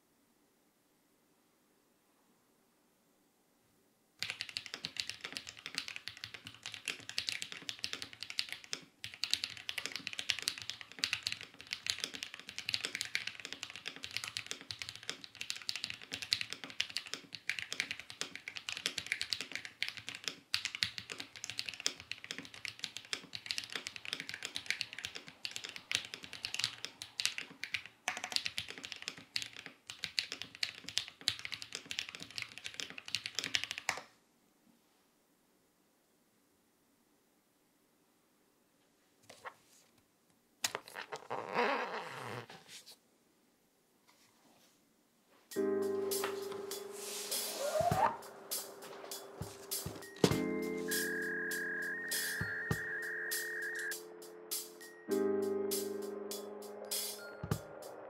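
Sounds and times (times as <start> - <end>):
fast typing on mechanical keyboard: 4.2 - 34.1.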